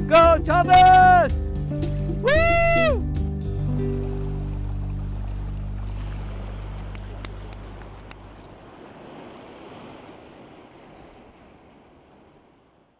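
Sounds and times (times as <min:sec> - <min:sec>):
background music low notes: 0:00.0 - 0:08.6
surf washing onto rocks: 0:05.7 - 0:12.7.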